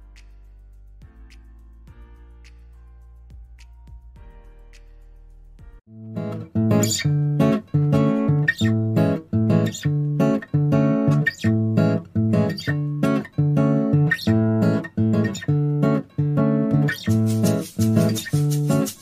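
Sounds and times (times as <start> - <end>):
plucked guitar music: 5.9 - 19.0.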